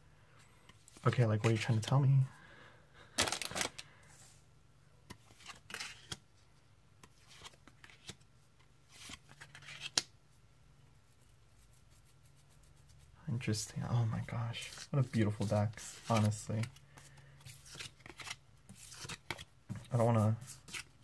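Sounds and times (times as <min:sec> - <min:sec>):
cards swishing: 0:17.4 - 0:20.9.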